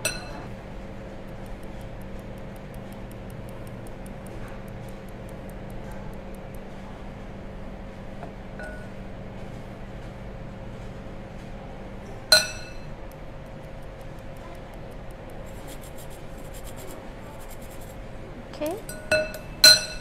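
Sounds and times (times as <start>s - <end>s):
sieve tapping ticks: 1.2s - 6.6s, 13.0s - 15.6s.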